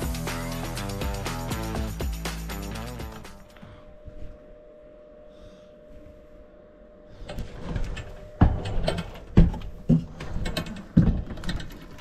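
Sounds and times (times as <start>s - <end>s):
rustling and handling noise: 3.0s - 12.0s
footsteps on wooden ladder: 7.4s - 12.0s.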